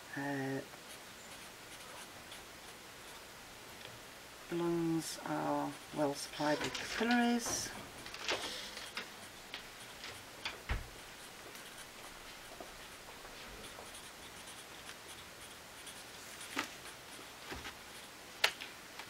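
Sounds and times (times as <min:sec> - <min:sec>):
marker pen writing on paper: 0:00.9 - 0:03.3, 0:08.4 - 0:18.2.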